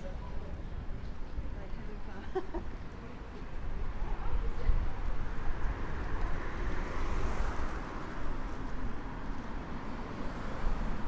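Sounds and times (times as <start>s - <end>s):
road traffic: 0.0s - 11.0s.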